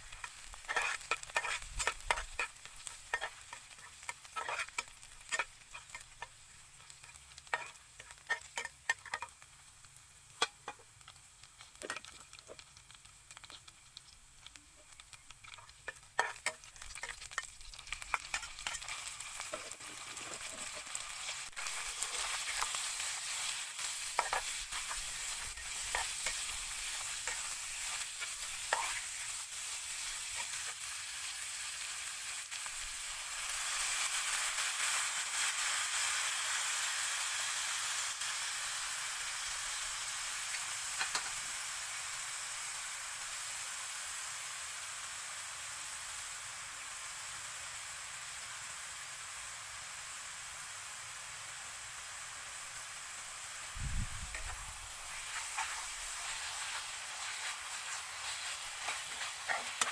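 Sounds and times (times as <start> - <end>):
beef sizzling in hot oil: 0.0 - 59.9
garlic sizzling in oil: 0.0 - 59.9
metal spatula scraping a pan: 0.2 - 6.3, 7.0 - 9.4, 15.5 - 30.8, 54.3 - 59.9.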